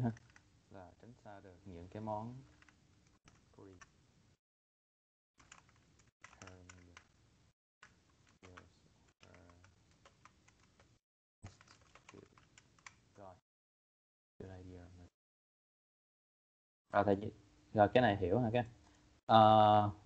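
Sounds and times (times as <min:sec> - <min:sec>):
faint keyboard typing: 0:00.0 - 0:00.5, 0:02.3 - 0:03.9, 0:05.4 - 0:07.2, 0:07.8 - 0:13.3.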